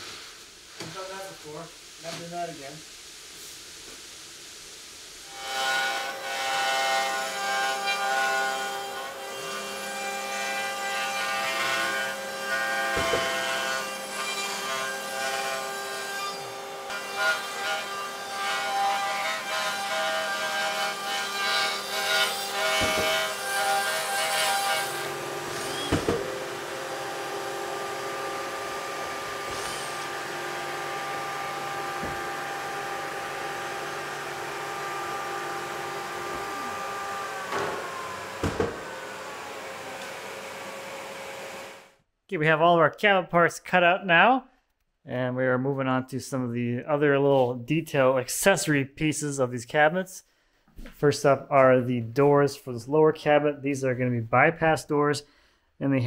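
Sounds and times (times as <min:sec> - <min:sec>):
router whine: 0:24.8 - 0:41.9
steady machine hum: 0:25.0 - 0:41.8.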